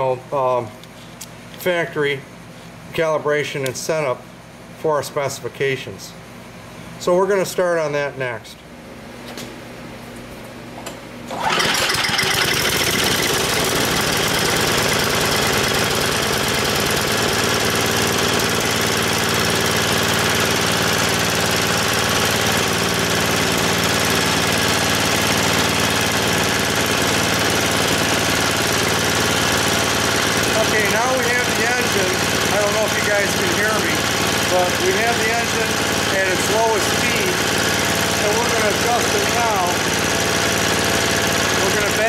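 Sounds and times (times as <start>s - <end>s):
engine pull-start: 11.3s - 16.8s
snowblower engine running: 11.3s - 42.0s.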